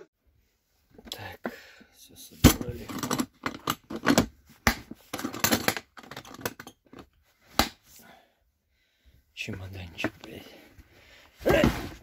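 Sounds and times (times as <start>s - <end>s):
tools rattling: 2.4s - 7.2s.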